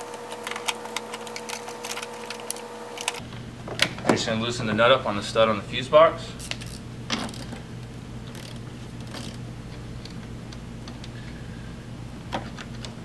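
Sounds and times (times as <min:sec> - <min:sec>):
steady low hum: 0:00.0 - 0:13.0
ratchet wrench clicking: 0:06.4 - 0:07.5, 0:08.3 - 0:09.4.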